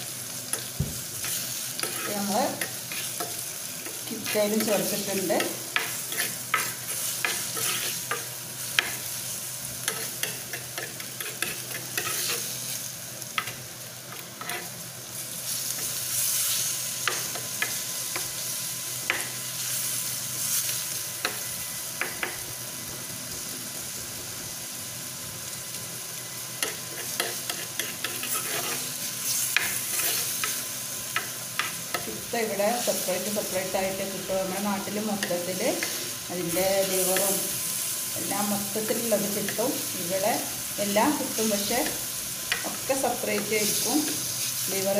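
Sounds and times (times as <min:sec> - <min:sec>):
onions sizzling in hot oil: 0:00.0 - 0:44.9
metal spoon scraping clay pot: 0:05.8 - 0:08.2, 0:26.8 - 0:28.9.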